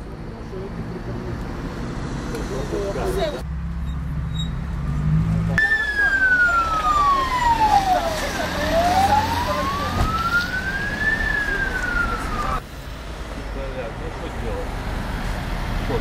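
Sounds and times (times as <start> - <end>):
ambulance siren wailing: 5.6 - 12.6.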